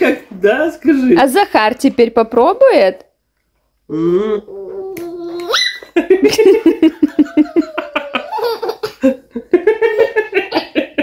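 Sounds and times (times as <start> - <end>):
toddler laughing: 4.5 - 9.1
man laughing: 6.0 - 11.0.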